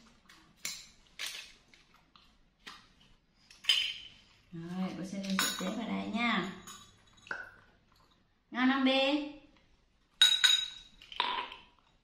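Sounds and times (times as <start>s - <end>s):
tableware clinking: 3.6s - 4.2s, 5.2s - 7.6s, 10.2s - 11.6s.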